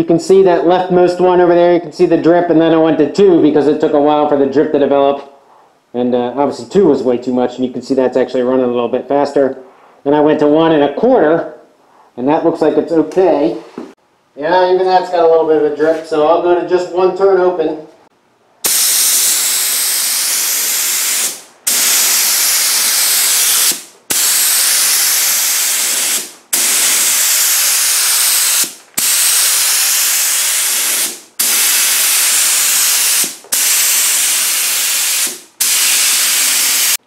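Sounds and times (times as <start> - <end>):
spray gun hissing: 18.6 - 37.0.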